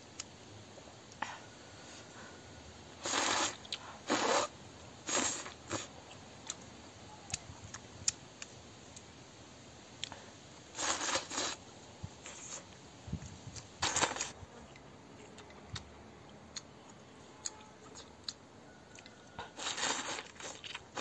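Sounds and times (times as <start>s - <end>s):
noodles being slurped: 3.0s - 5.9s, 10.8s - 11.6s, 13.8s - 14.4s, 19.5s - 21.0s
chewing clicks: 14.7s - 19.5s.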